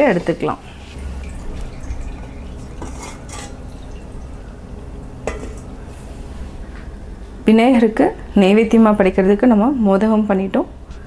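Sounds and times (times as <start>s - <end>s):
low steady hum: 0.0s - 11.0s
steamer plate clinking on metal pot: 5.2s - 5.6s.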